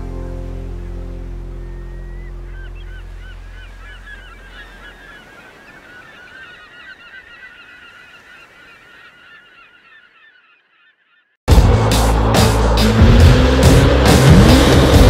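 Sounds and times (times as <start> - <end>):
low music: 0.0 - 3.6, 11.5 - 15.0
flock of birds calling: 1.5 - 11.4.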